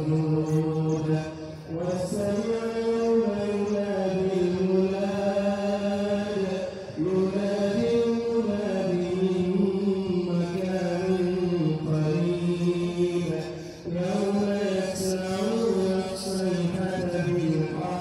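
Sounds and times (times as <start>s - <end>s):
person chanting held notes: 0.0s - 18.0s.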